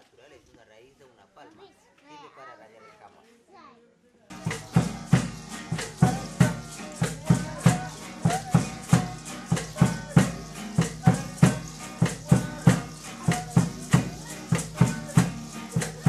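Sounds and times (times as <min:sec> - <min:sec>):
hand drum beating: 0:04.3 - 0:16.0
strummed acoustic guitar: 0:04.3 - 0:16.0.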